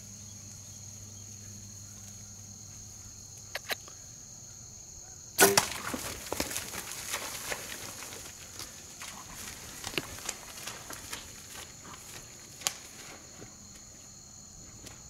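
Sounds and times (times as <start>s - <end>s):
insects droning: 0.0s - 15.0s
bowstring and arrow crack: 5.4s - 7.6s
deer crashing through reeds: 5.4s - 13.1s.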